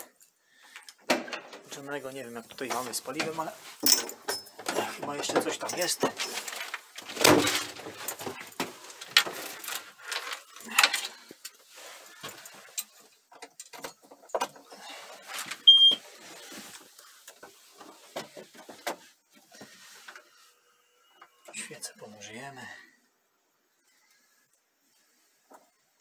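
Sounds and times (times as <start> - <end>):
short high beep: 15.7 - 16.0.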